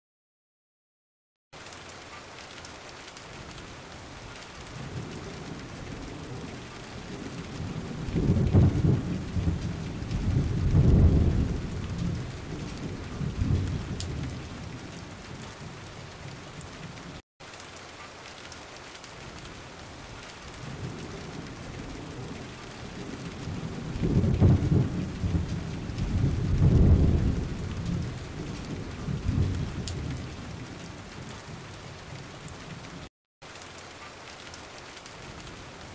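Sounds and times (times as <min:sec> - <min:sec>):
steady rain: 0:01.6 - 0:35.9
rolling thunder: 0:04.8 - 0:17.0, 0:20.5 - 0:32.8.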